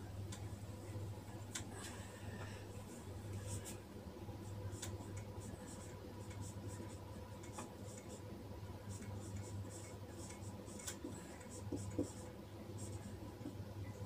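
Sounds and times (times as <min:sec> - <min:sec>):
marker pen writing on whiteboard: 0:04.7 - 0:08.2, 0:08.9 - 0:13.6.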